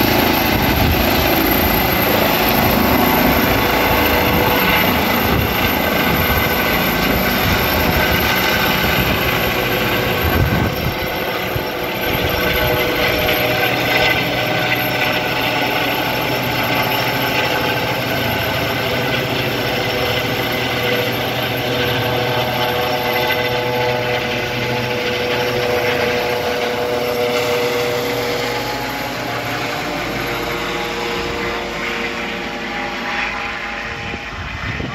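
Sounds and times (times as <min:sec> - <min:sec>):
helicopter flying overhead: 0:00.0 - 0:34.9.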